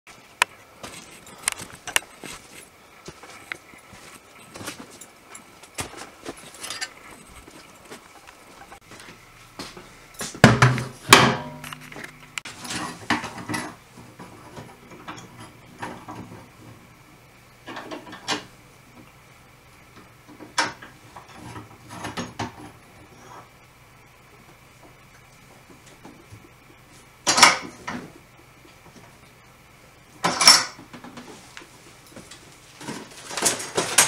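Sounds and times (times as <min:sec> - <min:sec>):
metal clanks and knocks: 0:10.3 - 0:13.8.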